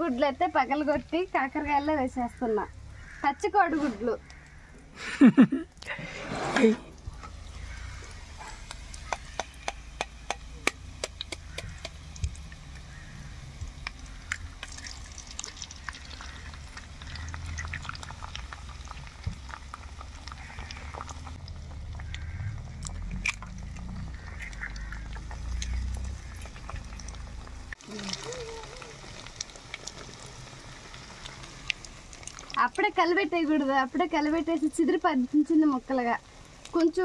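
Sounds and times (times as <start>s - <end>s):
low steady rumble: 5.4s - 37.0s
eggs tapped on metal spatula: 9.0s - 12.4s.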